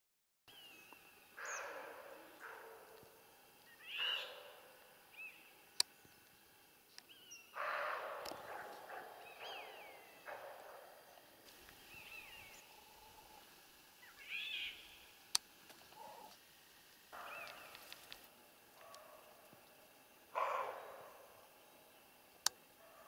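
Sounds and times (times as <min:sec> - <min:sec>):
bird chirps: 0:00.5 - 0:15.2, 0:17.1 - 0:18.1
deer barking: 0:01.3 - 0:05.4, 0:07.5 - 0:16.4, 0:17.1 - 0:21.6, 0:22.7 - 0:23.0.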